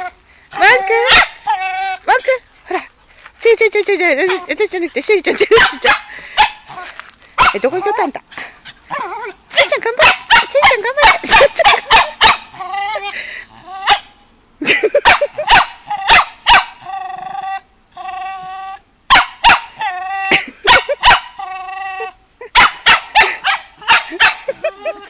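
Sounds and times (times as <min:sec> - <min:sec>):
dog whining: 0:00.0 - 0:02.4, 0:08.9 - 0:09.4, 0:11.1 - 0:14.1, 0:19.8 - 0:20.8, 0:23.2 - 0:25.0
dog barking: 0:01.0 - 0:01.4, 0:05.5 - 0:06.6, 0:07.4 - 0:07.7, 0:10.0 - 0:12.5, 0:15.0 - 0:16.8, 0:19.1 - 0:19.9, 0:20.7 - 0:21.3, 0:22.5 - 0:24.6.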